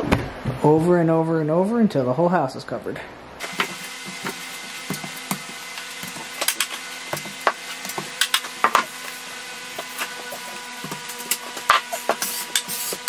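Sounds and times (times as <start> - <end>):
steady hum: 0.0 - 13.0
taping knife scraping compound: 3.6 - 13.0.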